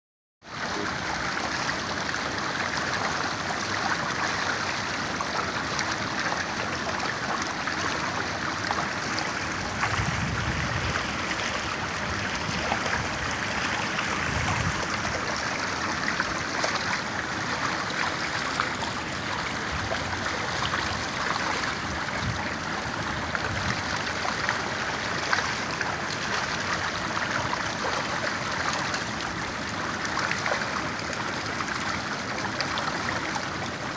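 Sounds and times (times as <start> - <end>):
water rushing and splashing: 0.4 - 33.9.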